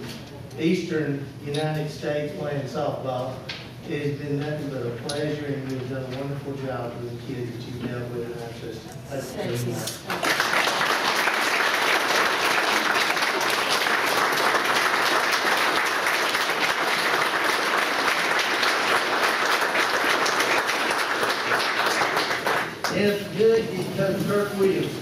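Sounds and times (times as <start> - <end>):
crowd applauding: 10.0 - 23.0.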